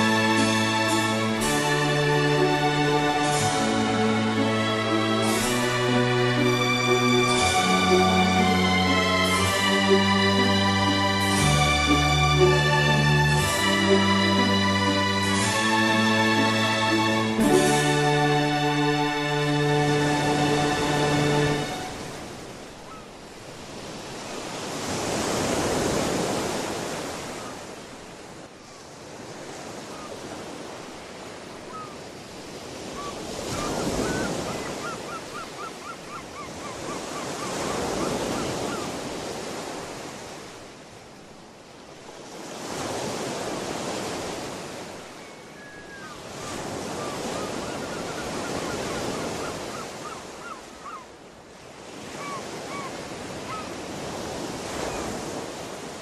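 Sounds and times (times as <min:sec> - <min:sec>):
ocean waves washing in: 0:00.0 - 0:56.0.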